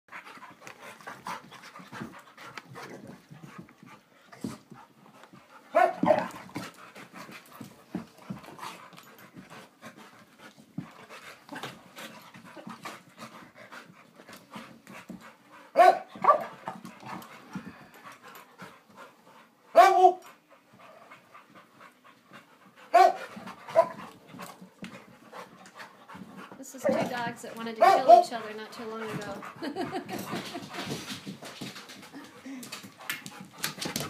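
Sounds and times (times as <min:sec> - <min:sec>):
puppies panting: 0:00.1 - 0:34.0
paws scuffling clicks: 0:22.6 - 0:34.0.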